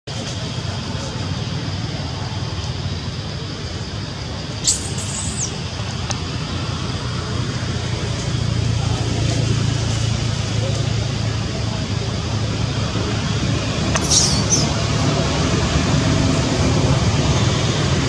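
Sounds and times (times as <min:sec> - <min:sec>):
outdoor background rumble: 0:00.1 - 0:18.0
high-pitched squeak: 0:14.0 - 0:14.7.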